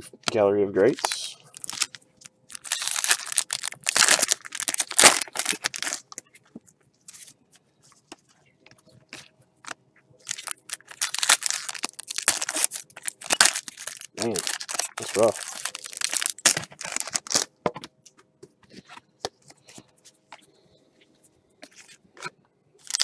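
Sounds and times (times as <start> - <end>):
pack wrappers crinkling: 0.9 - 6.5, 9.1 - 17.5, 22.8 - 23.0.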